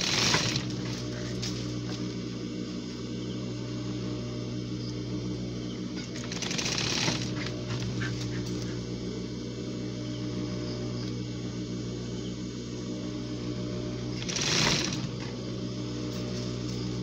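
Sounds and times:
sewing machine needle stitching: 0.0 - 0.9, 6.1 - 7.5, 14.2 - 15.3
sewing machine motor humming: 0.0 - 17.0.

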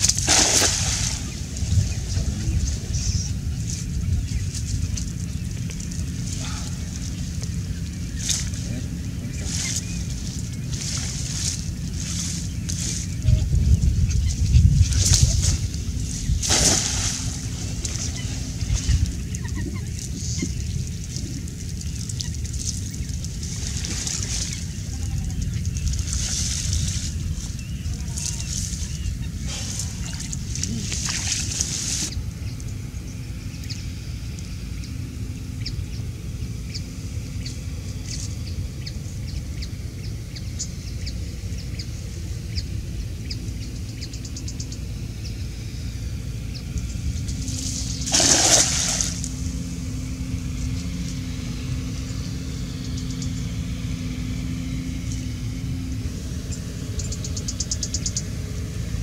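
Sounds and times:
loud splash: 0.0 - 1.6, 16.4 - 18.5, 47.5 - 49.3
cast net splashing in water: 0.0 - 1.7, 16.4 - 19.0, 47.4 - 49.8
steady low rumble: 0.0 - 59.0.

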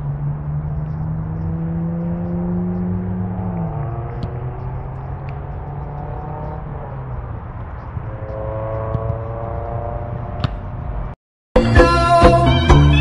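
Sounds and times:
engine-like hum: 0.0 - 13.0.

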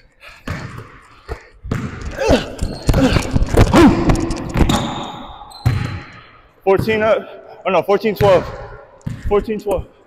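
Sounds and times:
basketball bouncing on court: 0.4 - 1.0, 1.6 - 7.1, 8.1 - 9.6.

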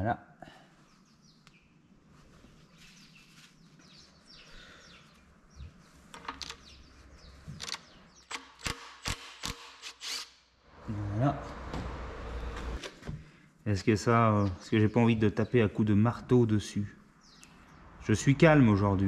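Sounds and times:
metal clicks and knocks: 6.1 - 6.7.

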